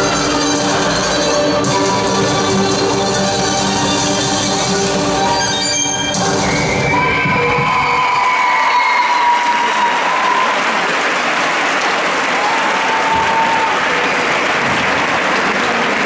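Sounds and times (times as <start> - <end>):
crowd applauding: 6.6 - 16.0.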